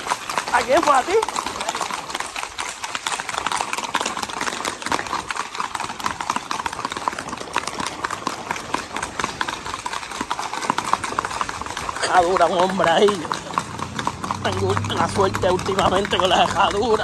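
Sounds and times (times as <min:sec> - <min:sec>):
hooves clattering on pavement: 0:00.0 - 0:17.0.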